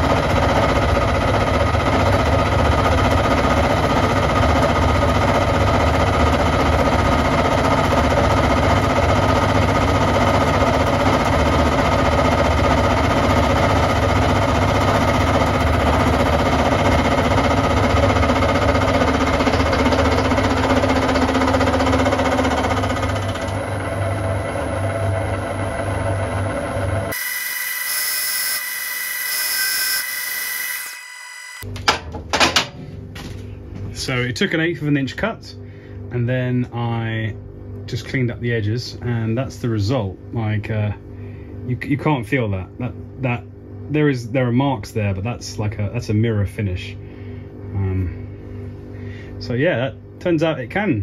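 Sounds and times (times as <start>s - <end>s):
milling machine cutting metal: 14.5s - 31.6s.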